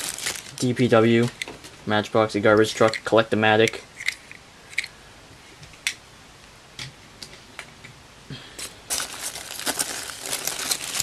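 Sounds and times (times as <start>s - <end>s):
foam packing peanuts rustling: 0.0s - 1.4s, 8.9s - 11.0s
plastic bags crinkling: 0.0s - 1.6s, 8.9s - 11.0s.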